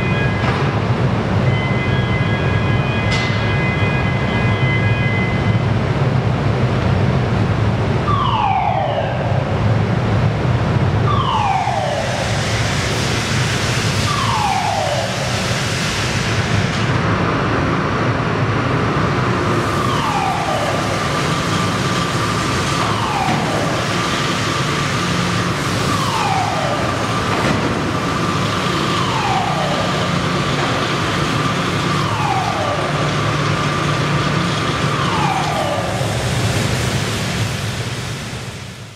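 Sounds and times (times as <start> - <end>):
blast furnace roar: 0.0 - 38.9
warning siren falling tone: 8.0 - 9.6, 11.0 - 13.0, 13.9 - 15.5, 19.4 - 36.5.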